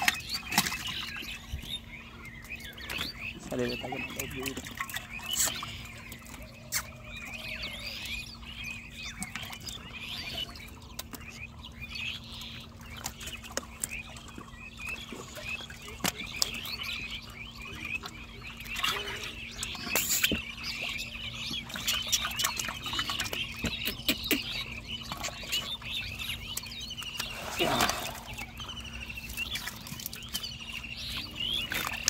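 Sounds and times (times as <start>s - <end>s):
fish splashing in water: 0.0s - 1.7s, 9.0s - 32.0s.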